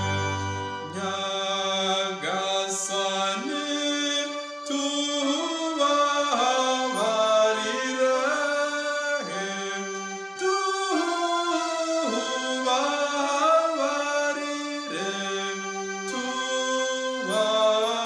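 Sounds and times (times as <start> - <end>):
electronic keyboard chords: 0.0 - 1.2
man singing: 0.0 - 18.0.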